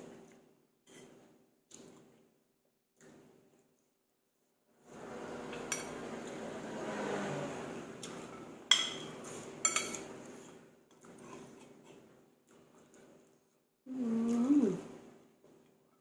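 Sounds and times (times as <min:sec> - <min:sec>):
noisy eating sounds: 0:04.9 - 0:15.7
spoon clinking against ceramic bowl: 0:08.7 - 0:10.0.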